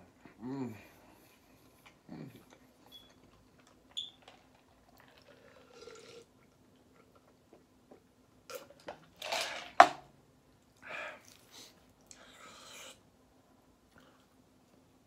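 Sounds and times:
quiet chewing: 1.3 - 4.0.

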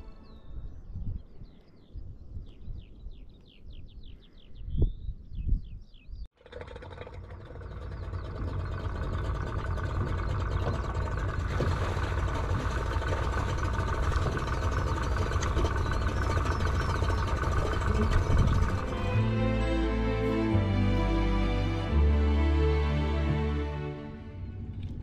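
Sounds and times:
birds chirping: 0.0 - 6.3, 7.6 - 22.4
outboard motor idling: 6.3 - 19.7.

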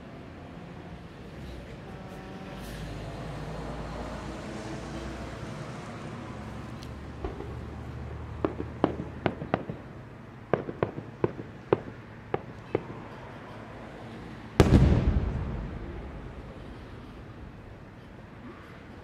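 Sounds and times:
firework pops: 7.2 - 7.7, 14.6 - 16.0
heavy firework shell burst: 14.6 - 17.6
rumbling echo: 14.6 - 17.8.

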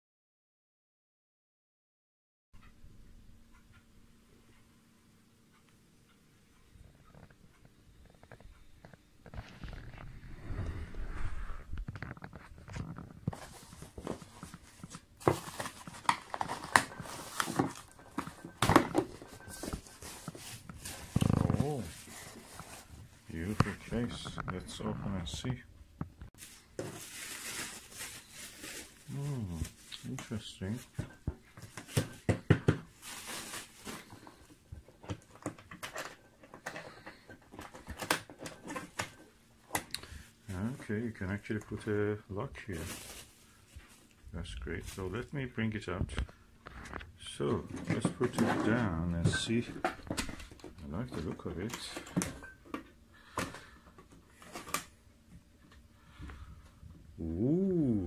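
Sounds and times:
cardboard and bubble wrap rustling: 11.6 - 25.6, 26.3 - 55.0.

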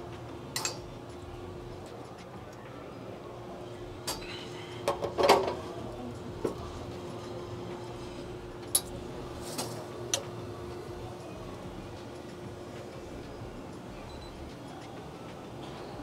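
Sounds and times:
steady low hum: 0.0 - 16.0
glasses and metal parts clinking: 0.6 - 0.8.

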